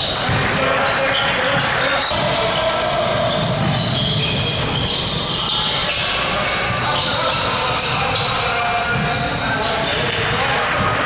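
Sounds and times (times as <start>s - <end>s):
basketball bouncing on court: 0.0s - 0.8s, 1.4s - 5.3s, 7.8s - 9.4s
indistinct voices in hall: 0.0s - 11.0s.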